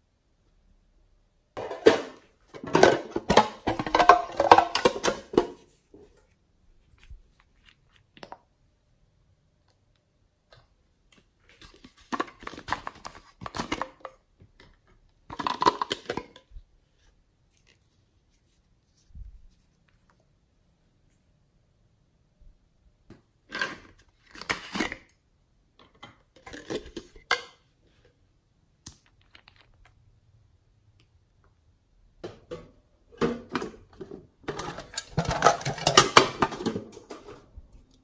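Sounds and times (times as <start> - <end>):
plastic containers crinkling: 1.6 - 8.4, 11.1 - 16.6, 23.4 - 25.2, 25.8 - 27.6, 33.2 - 38.0.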